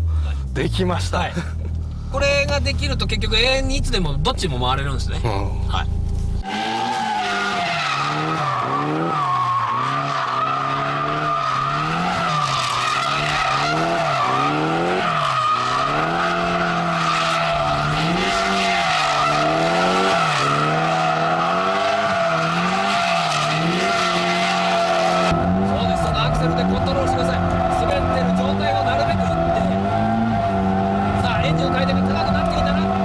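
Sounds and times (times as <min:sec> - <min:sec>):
car engine revving: 0:00.0 - 0:33.0
tyre squeal: 0:06.4 - 0:33.0.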